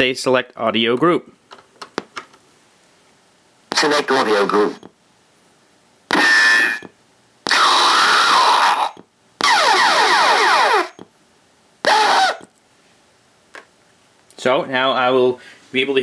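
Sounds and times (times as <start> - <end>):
ricochet sound effect: 6.1 - 6.8, 7.5 - 11.0
zombie sound effect: 7.5 - 10.9, 11.9 - 12.4
short scream: 7.5 - 11.0, 11.8 - 12.5.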